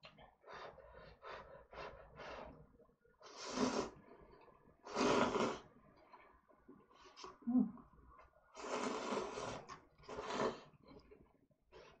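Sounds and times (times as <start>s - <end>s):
slurping noodles: 3.2s - 5.8s, 8.5s - 11.1s.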